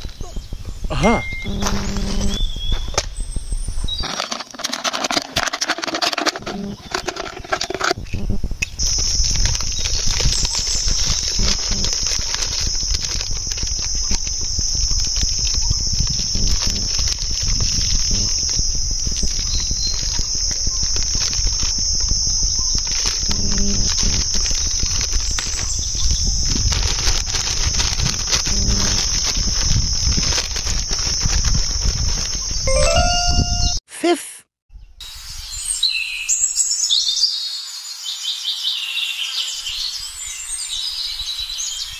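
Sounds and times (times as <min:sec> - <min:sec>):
insects droning: 0:00.0 - 0:03.0, 0:04.0 - 0:32.7
low rumble with crackles: 0:06.2 - 0:32.7.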